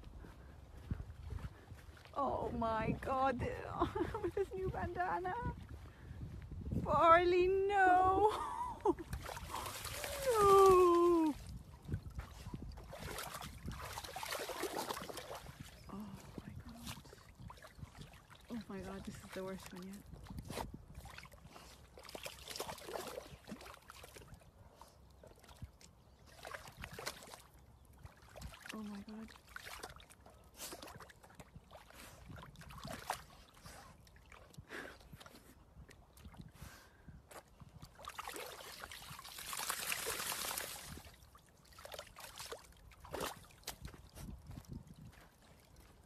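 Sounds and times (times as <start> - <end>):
dog splashing through muddy puddle: 9.0 - 36.5, 37.3 - 46.0.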